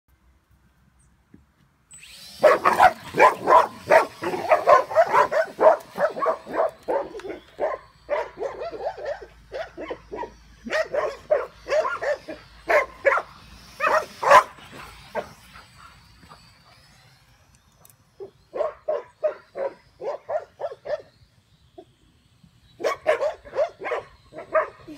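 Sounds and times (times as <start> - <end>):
dogs barking excitedly: 2.4 - 17.0, 18.2 - 21.2, 22.8 - 24.9.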